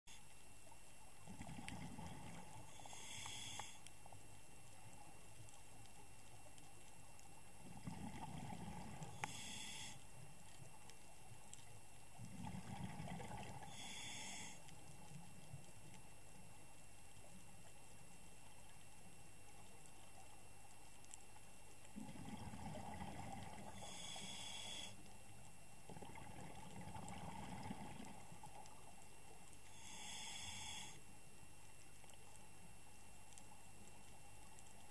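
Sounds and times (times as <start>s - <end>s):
exhaled air bubbling underwater: 0.5s - 3.8s, 4.7s - 18.2s, 21.7s - 31.0s
regulator inhalation hiss: 2.7s - 3.8s, 9.1s - 10.1s, 13.7s - 14.6s, 23.7s - 25.0s, 29.7s - 31.0s.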